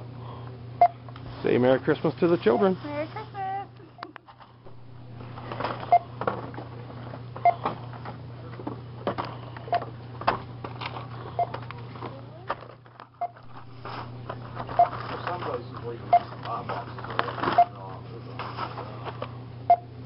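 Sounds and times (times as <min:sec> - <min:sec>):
barcode scanner beeps: 0:04.8 - 0:06.1, 0:11.4 - 0:11.6, 0:13.2 - 0:15.0, 0:16.1 - 0:16.3, 0:17.6 - 0:17.8, 0:19.7 - 0:19.9
plastic packaging rustling: 0:12.4 - 0:17.6.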